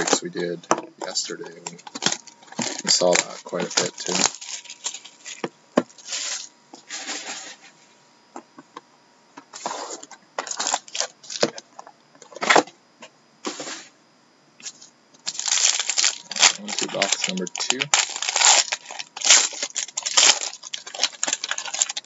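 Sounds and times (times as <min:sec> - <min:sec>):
plastic wrap crinkling: 0:01.0 - 0:06.5, 0:10.4 - 0:11.6, 0:15.2 - 0:22.0.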